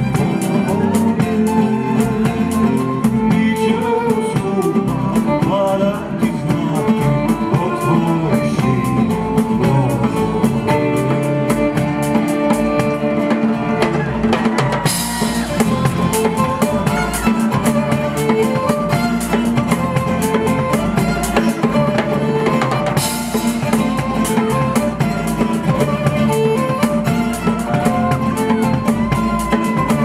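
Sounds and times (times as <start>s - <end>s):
classical guitar: 0.0s - 30.0s
drum kit steady beat: 0.0s - 30.0s
violin: 0.0s - 30.0s.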